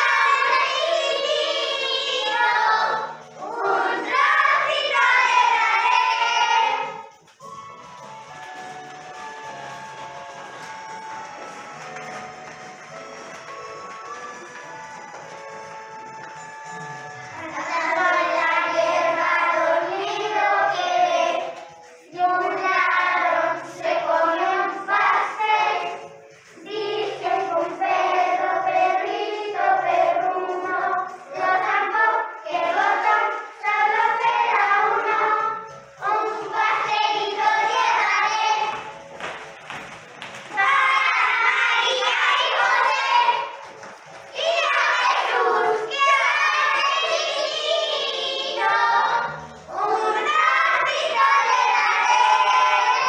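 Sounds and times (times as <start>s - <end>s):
children singing: 0.0s - 7.6s, 8.2s - 39.1s, 40.4s - 53.0s.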